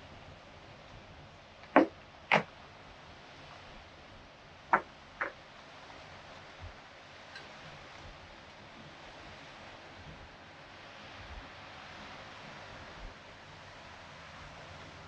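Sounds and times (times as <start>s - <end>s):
faint steady hiss: 0.0s - 15.0s
sharp knocks: 1.7s - 2.4s.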